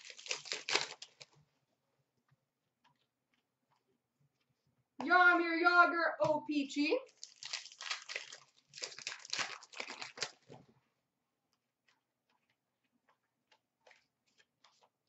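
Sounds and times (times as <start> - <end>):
wrapper crinkling and rustling: 0.0 - 1.4, 7.1 - 10.6.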